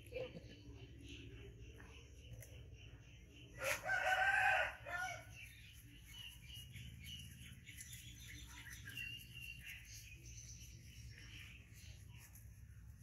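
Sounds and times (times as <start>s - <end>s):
faint high chirping: 0.0s - 13.0s
rooster crowing: 3.6s - 5.3s.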